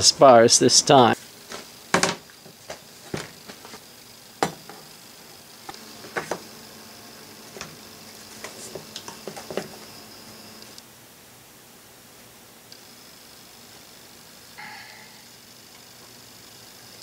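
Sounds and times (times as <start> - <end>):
parts clicking and knocking on a board: 1.5 - 3.8, 4.4 - 4.9.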